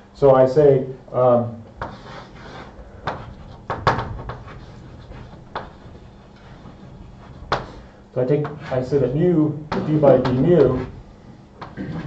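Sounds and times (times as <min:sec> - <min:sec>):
low room hum: 0:00.0 - 0:12.0
sharp knocks and clicks: 0:03.0 - 0:08.6.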